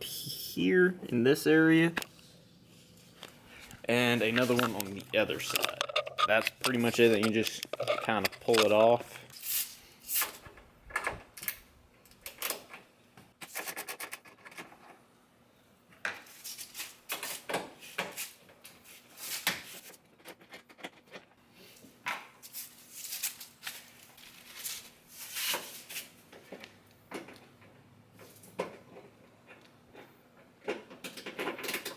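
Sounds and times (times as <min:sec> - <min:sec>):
hand tools clicking and knocking: 0:03.9 - 0:09.4.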